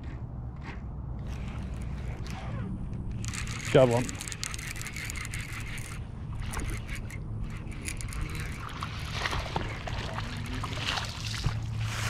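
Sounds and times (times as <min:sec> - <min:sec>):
fishing reel clicking: 0:03.1 - 0:10.8
fish splashing in water: 0:08.4 - 0:12.0.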